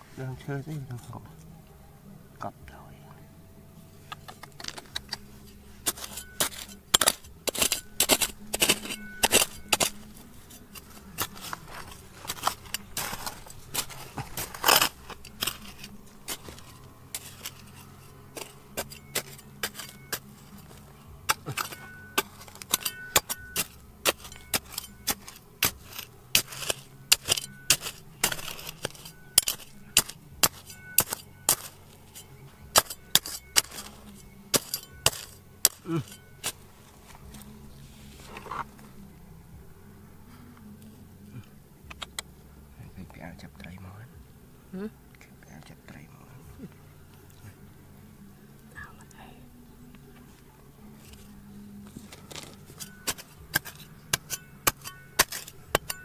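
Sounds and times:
tool scraping ground: 4.1 - 39.0, 50.8 - 56.0
metal tool striking stony ground: 4.2 - 37.5, 41.9 - 42.2, 51.0 - 56.0.

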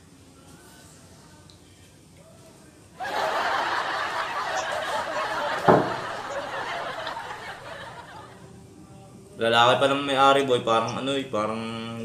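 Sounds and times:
people laughing and snickering: 3.0 - 8.5.

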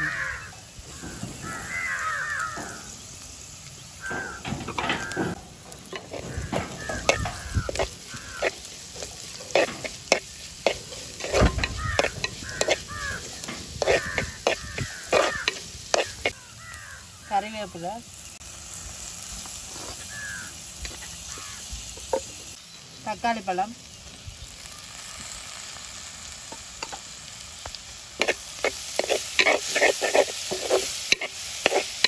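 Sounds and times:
crows cawing: 0.0 - 3.0, 4.0 - 17.4, 19.9 - 20.6, 21.2 - 21.8
onions sizzling: 0.0 - 32.0
spoon scraping in clay pot: 5.8 - 16.4, 28.2 - 32.0.

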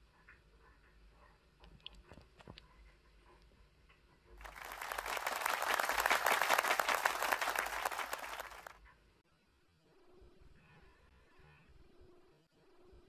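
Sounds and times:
crowd applauding: 4.4 - 8.8.

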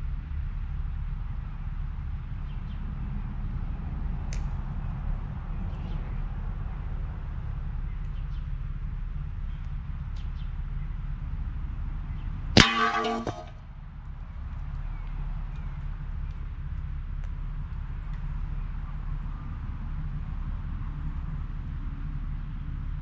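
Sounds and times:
metal plate clanging: 12.6 - 13.5.

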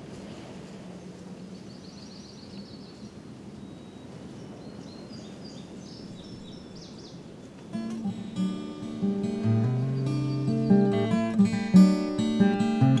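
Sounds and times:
outdoor background hiss: 0.0 - 13.0
small birds chirping: 1.0 - 13.0
acoustic guitar music: 7.7 - 13.0.

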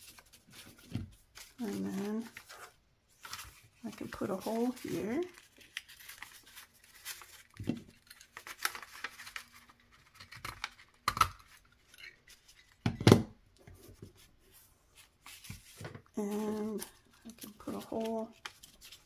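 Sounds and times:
paper clicks and crackles: 0.0 - 12.7, 16.3 - 19.0.

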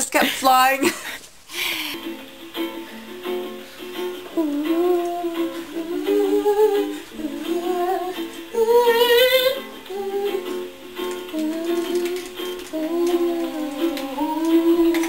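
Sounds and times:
person humming: 4.3 - 10.6, 11.3 - 15.0.

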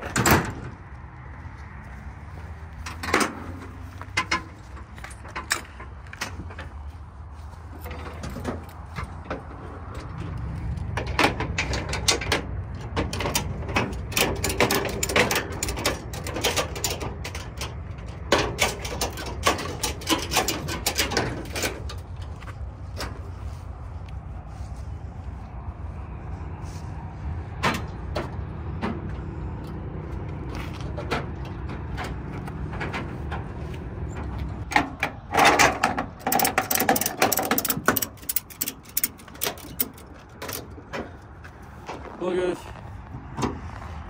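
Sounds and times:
metal hooks clanking: 34.7 - 41.1
quick ratchet clicks: 36.2 - 40.0.

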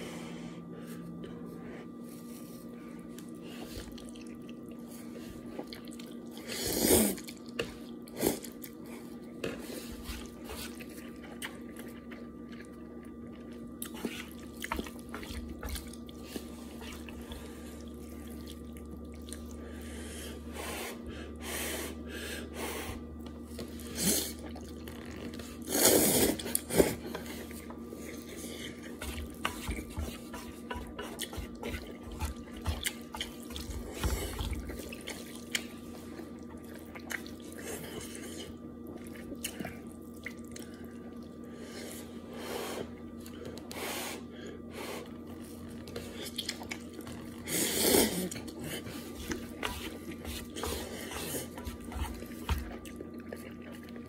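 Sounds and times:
noodles slurped and chewed: 3.2 - 19.9, 45.0 - 54.0.

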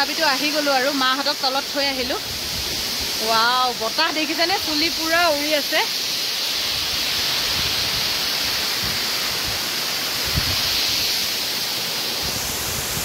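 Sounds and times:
waterfall rushing: 0.0 - 13.0
wind buffeting microphone: 10.2 - 11.0.

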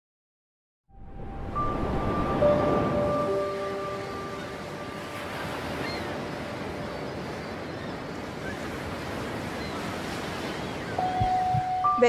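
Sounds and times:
sea surf washing ashore: 1.0 - 12.0.

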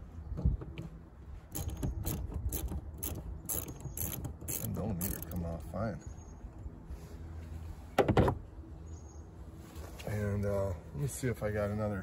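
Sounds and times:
socket ratchet clicking: 1.5 - 5.4.

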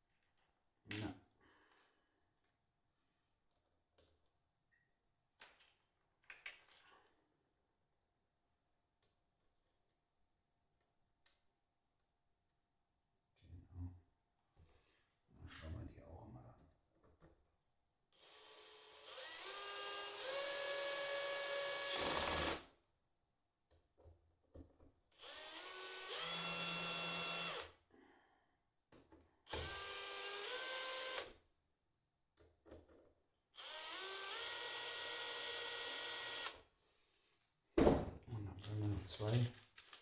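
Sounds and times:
cordless drill motor whine: 18.2 - 22.6, 25.2 - 27.7, 29.5 - 31.3, 33.6 - 36.6.

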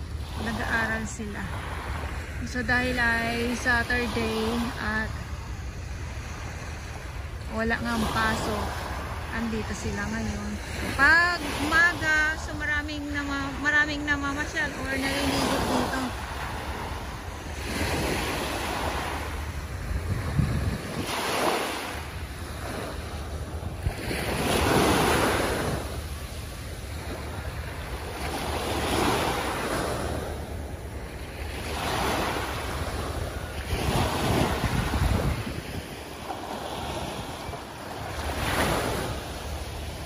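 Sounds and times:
waves breaking on sandy beach: 0.0 - 40.0
wind on microphone: 14.2 - 40.0.

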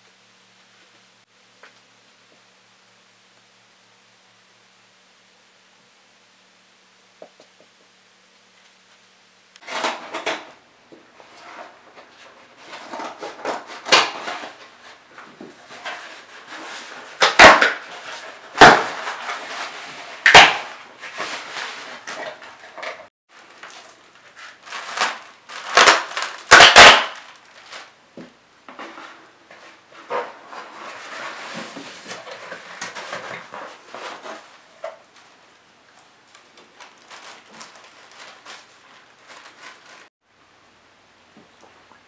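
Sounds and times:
cardboard scraping and rustling: 11.2 - 26.4, 28.7 - 35.4
packing tape ripping: 12.7 - 14.7, 15.7 - 22.4, 23.5 - 28.0, 36.3 - 40.1
cardboard tearing snaps: 13.7 - 14.6, 17.2 - 17.9, 20.2 - 20.8, 24.6 - 27.9.

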